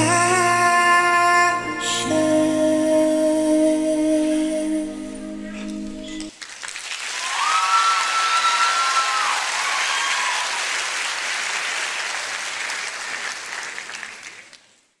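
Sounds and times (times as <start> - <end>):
audience applauding: 6.2 - 14.8
high cheer: 6.9 - 14.2.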